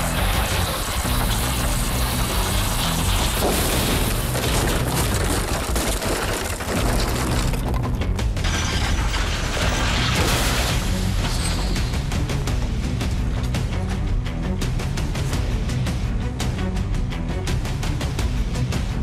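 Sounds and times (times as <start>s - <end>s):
background music: 0.0s - 19.0s
metal crunching and clattering: 1.3s - 11.9s.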